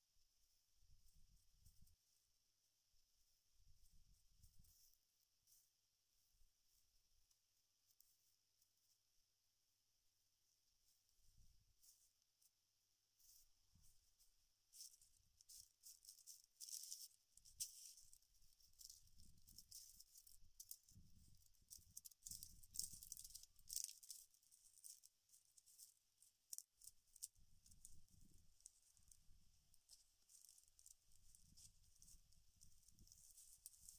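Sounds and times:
dry fibres rustling and crackling: 11.7 - 33.9.

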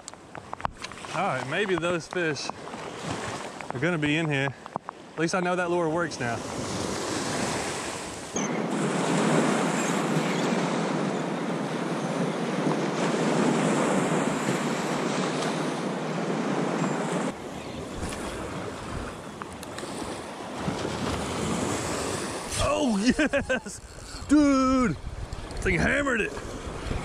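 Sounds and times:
waves breaking on beach: 0.0 - 27.0
wind rumbling on microphone: 6.4 - 27.0.

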